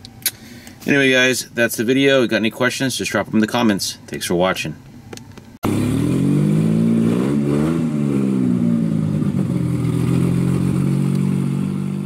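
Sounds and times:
car engine revving and idling: 5.6s - 12.0s.

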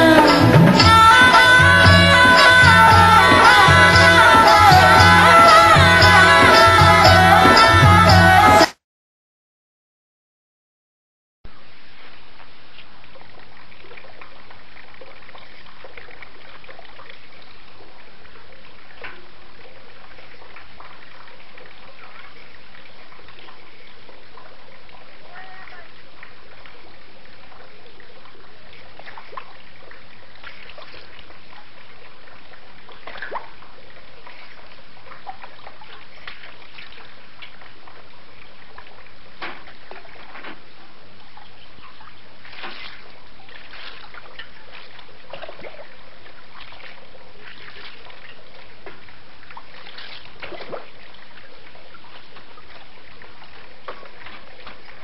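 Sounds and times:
water splashing and trickling: 11.5s - 55.0s.

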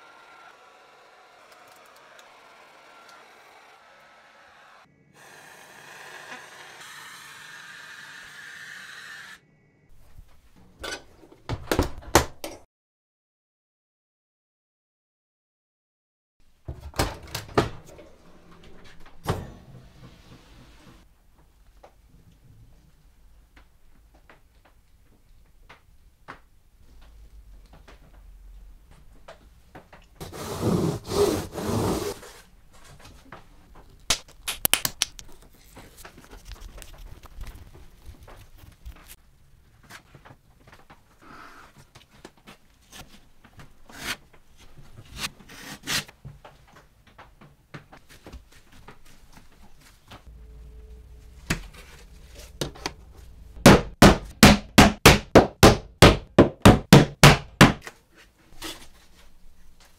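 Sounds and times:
hammer tapping nails: 53.7s - 57.8s.

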